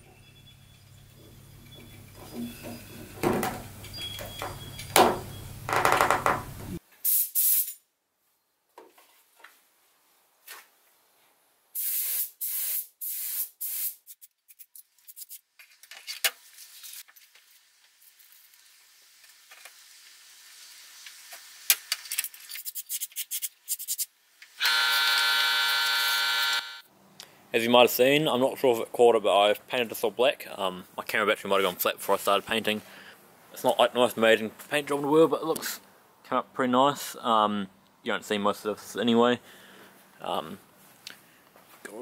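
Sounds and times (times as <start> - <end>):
spray paint hissing in bursts: 7.0 - 7.8, 11.8 - 15.4.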